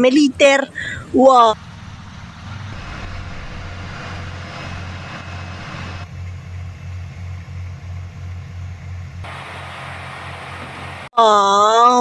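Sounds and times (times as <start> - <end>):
diesel truck engine running: 0.5 - 11.1
hiss: 9.2 - 11.1.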